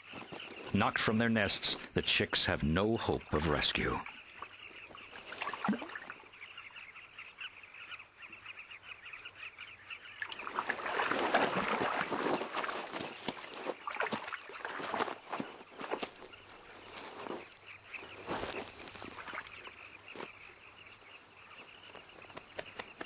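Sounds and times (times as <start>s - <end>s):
birds chirping in a colony: 0.0s - 23.0s.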